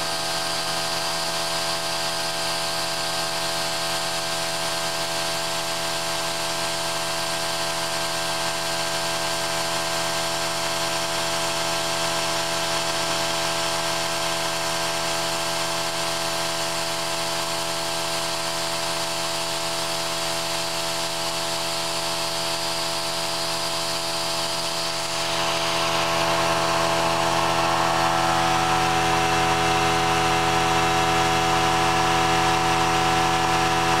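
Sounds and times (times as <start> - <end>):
milling machine cutting metal: 24.4 - 34.0.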